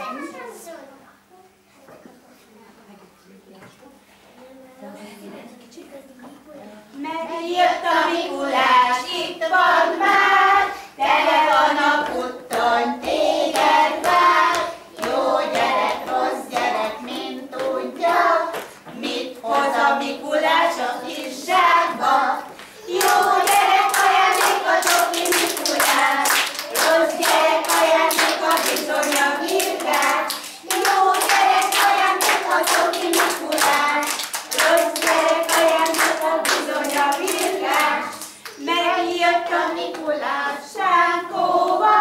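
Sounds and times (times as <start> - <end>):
children singing: 7.3 - 42.0
rhythmic hand clapping: 10.0 - 21.8, 22.5 - 40.6.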